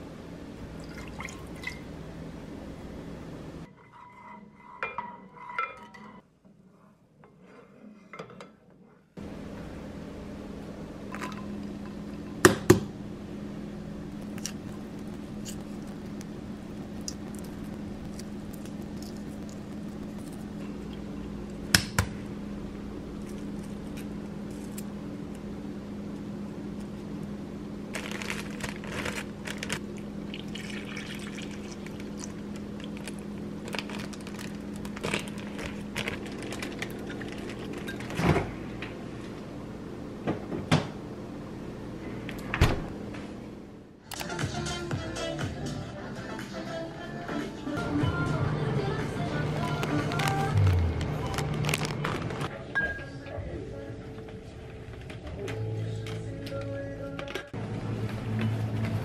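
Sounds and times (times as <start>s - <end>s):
low steady hum: 0.0s - 46.2s, 46.8s - 59.0s
plastic bag crinkling: 27.9s - 29.8s, 30.9s - 38.2s, 49.6s - 52.5s
liquid pouring into bag: 28.0s - 37.9s.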